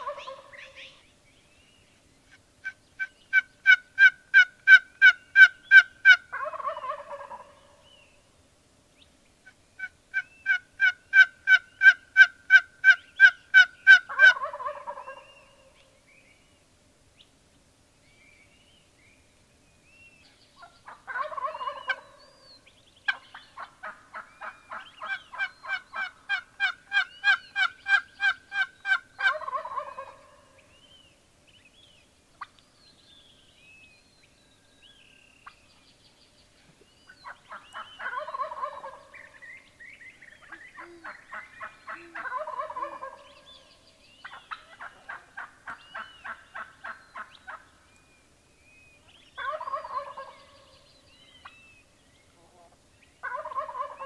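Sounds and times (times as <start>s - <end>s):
turkey gobbling: 0.0s - 1.0s, 2.6s - 7.7s, 9.8s - 15.3s, 20.6s - 22.2s, 23.1s - 30.5s, 37.2s - 39.4s, 40.4s - 43.4s, 44.2s - 47.7s, 49.4s - 50.6s, 53.2s - 54.0s
turkey yelps: 0.0s - 1.0s, 3.3s - 7.6s, 9.8s - 15.2s, 20.6s - 22.2s, 23.1s - 30.4s, 37.2s - 39.2s, 40.4s - 43.4s, 44.2s - 47.6s, 49.4s - 50.5s, 53.2s - 54.0s
small birds chirping: 18.0s - 54.0s.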